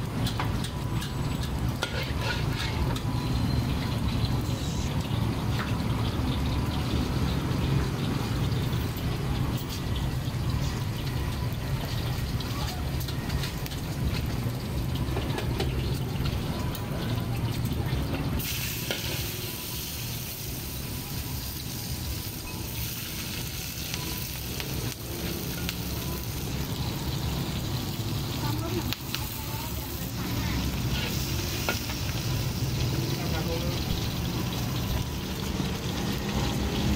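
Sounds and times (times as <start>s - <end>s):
shrimp sizzling in hot oil: 0.0s - 36.9s
metal utensils scraping pan: 1.8s - 3.1s, 30.6s - 31.9s.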